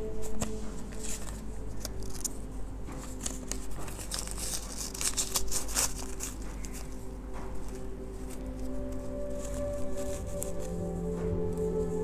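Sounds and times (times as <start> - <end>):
cardboard box rustling and crinkling: 0.1 - 12.0.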